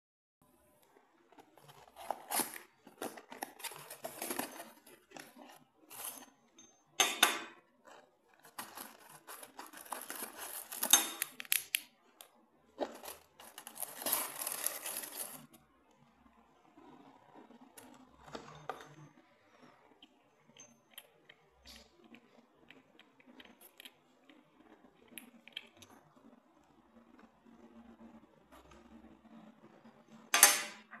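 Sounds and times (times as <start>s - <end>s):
cardboard box being opened: 1.4s - 6.1s, 8.4s - 10.9s, 12.9s - 15.4s
packing paper rustling: 1.4s - 6.2s, 7.9s - 11.6s, 12.8s - 15.5s.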